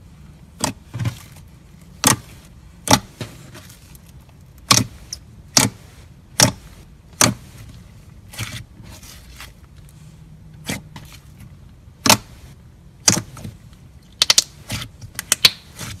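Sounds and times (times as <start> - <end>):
slime squeezed with clicks and pops: 14.2 - 14.6.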